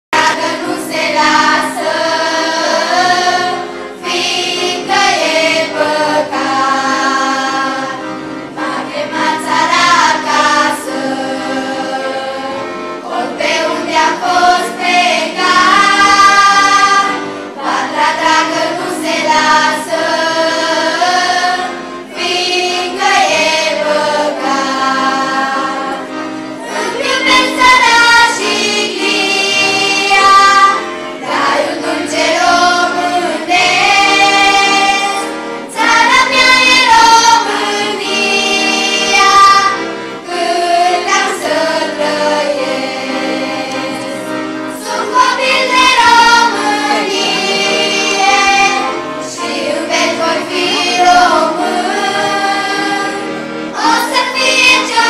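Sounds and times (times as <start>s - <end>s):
accordion: 0.0s - 55.0s
choir singing: 0.2s - 55.0s.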